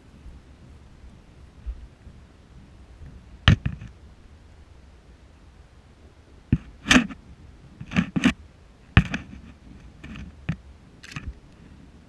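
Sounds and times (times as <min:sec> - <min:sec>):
scraping rustles: 0:07.8 - 0:12.0.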